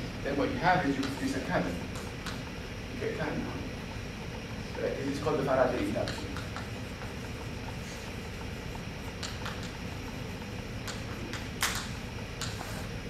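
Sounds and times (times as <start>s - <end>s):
low room hum: 0.0s - 13.0s
chalk scratching on blackboard: 6.0s - 11.4s, 12.4s - 13.0s.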